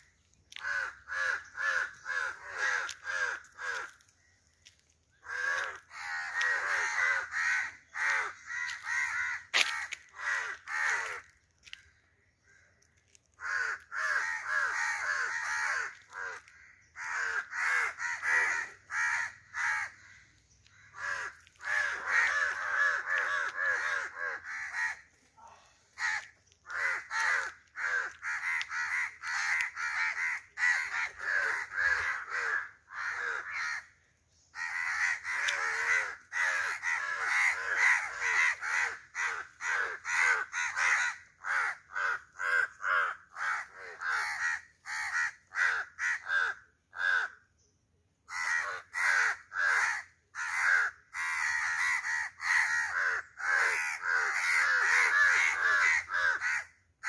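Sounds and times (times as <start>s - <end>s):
young crow cawing: 0.5s - 34.0s, 34.6s - 47.5s, 48.3s - 56.8s.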